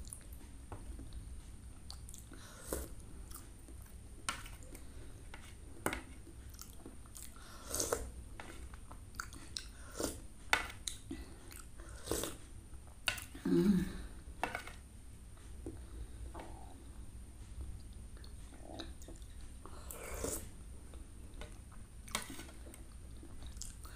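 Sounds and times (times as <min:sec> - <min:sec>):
chewing: 0:01.8 - 0:04.8, 0:06.4 - 0:10.2, 0:17.8 - 0:23.9.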